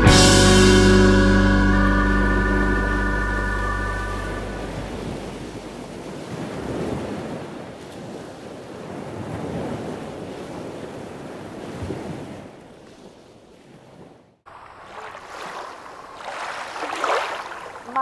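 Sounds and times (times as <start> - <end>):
water rushing along a hull: 0.8 - 13.2, 13.9 - 18.0.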